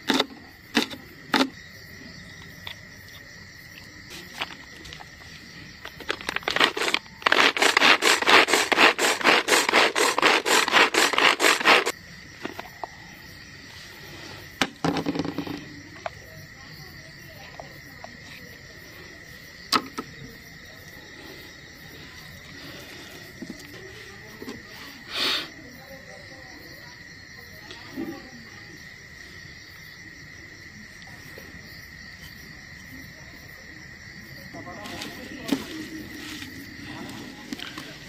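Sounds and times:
crickets chirring: 0.0s - 38.0s
hand food chopper strokes: 6.5s - 11.9s.

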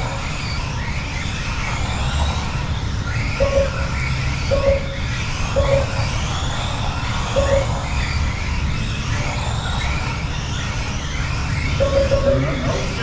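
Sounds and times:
small electric motors whining: 0.0s - 13.0s
short electronic beep: 11.8s - 12.7s.

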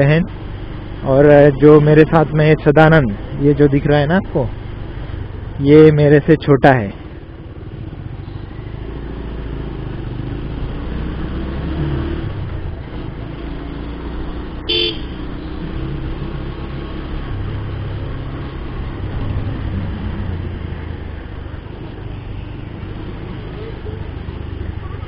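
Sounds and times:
road noise: 0.0s - 25.0s
motorcycle engine running: 7.0s - 25.0s
vehicle horn toot: 14.7s - 15.2s.

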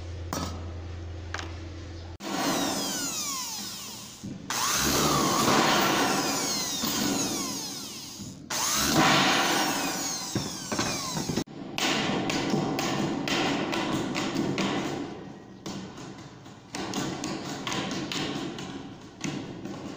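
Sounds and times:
electric drill boring through metal: 2.2s - 11.5s.

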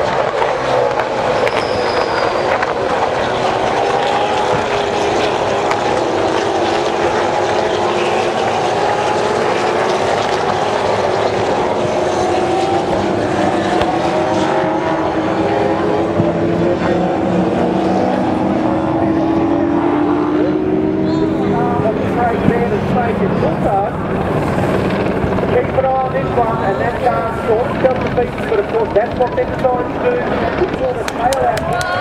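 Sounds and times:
racing engines droning: 0.0s - 32.0s.

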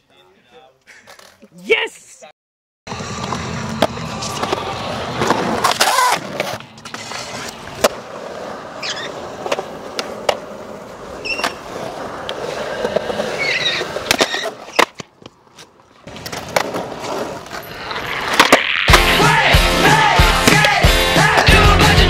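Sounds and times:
skateboard scraping concrete: 2.9s - 22.0s
skateboard wheels rolling on concrete: 2.9s - 22.0s
skateboard clacks: 16.0s - 21.7s.

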